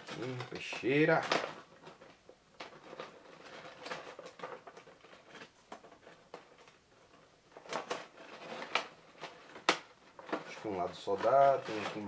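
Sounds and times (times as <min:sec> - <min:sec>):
plastic clicks and crackles: 0:00.0 - 0:12.0
knife scraping plastic package: 0:07.6 - 0:12.0.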